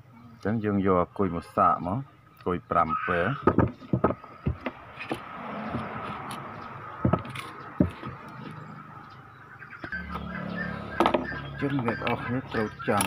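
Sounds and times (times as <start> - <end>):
low speaker hum: 9.9 - 12.9.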